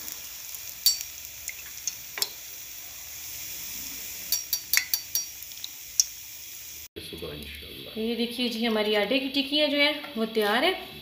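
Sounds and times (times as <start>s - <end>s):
oil sizzling in frying pan: 0.0s - 6.9s
metal utensils clinking on pan: 0.8s - 2.4s, 4.3s - 5.4s.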